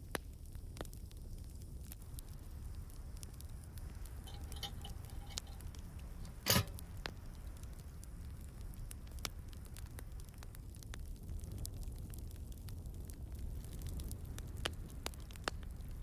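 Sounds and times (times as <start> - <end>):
wood fire crackling: 0.0 - 16.0
metal latch clank: 4.3 - 5.6, 6.2 - 6.8.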